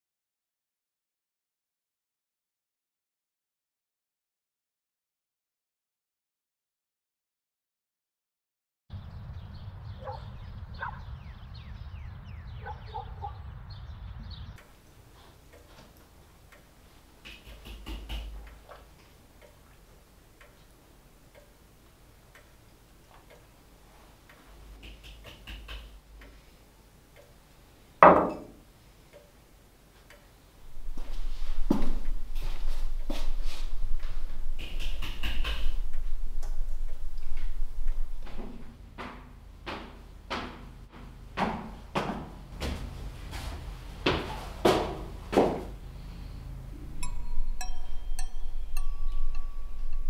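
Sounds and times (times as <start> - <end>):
bird chirps: 8.9 - 14.7, 46.8 - 50.0
mug set down on wooden table: 28.0 - 28.6
low rumble: 30.6 - 38.9, 45.8 - 50.0.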